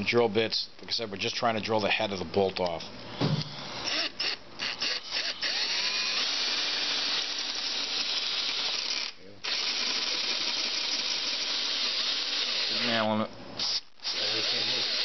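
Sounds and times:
power drill boring into screw: 3.8 - 12.8, 14.0 - 15.0.

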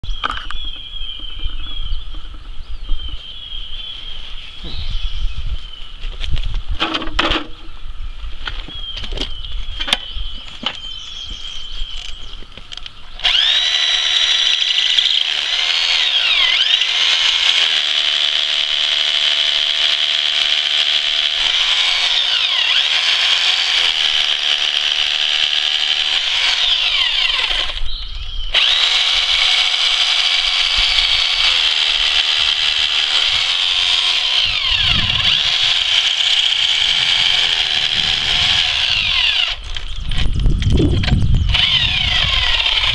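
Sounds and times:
rotary hammer drilling into stone: 13.2 - 42.9.

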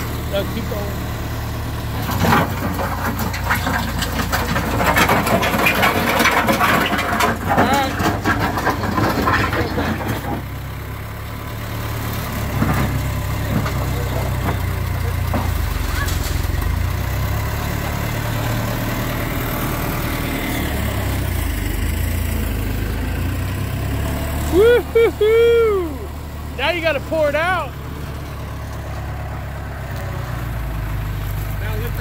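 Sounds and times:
loader engine running: 0.0 - 32.0
bucket pushing into gravel: 2.0 - 10.4.

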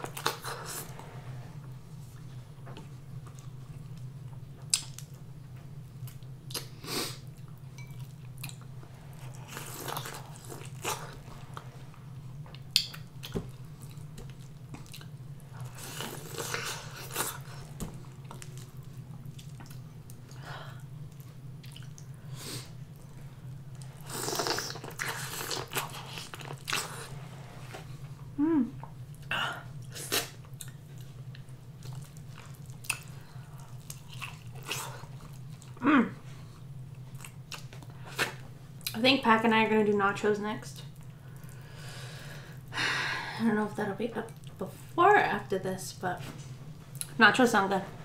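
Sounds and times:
steady low hum: 0.0 - 48.0
chewing and mouth noises: 12.4 - 22.2, 28.8 - 35.8.

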